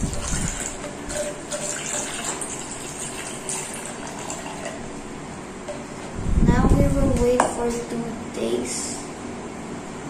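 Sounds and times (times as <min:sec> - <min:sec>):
liquid trickling into plastic cup: 0:00.0 - 0:04.8.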